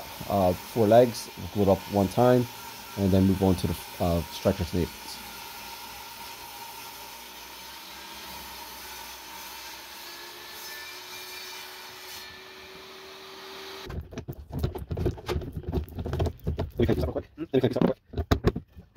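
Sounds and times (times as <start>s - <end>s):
table saw cutting wood: 0.0s - 13.9s.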